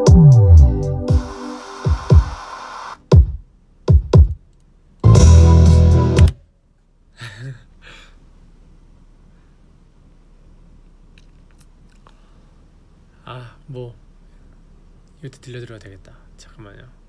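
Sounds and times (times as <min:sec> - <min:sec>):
electronic beat: 0:00.0 - 0:04.4, 0:05.0 - 0:06.3.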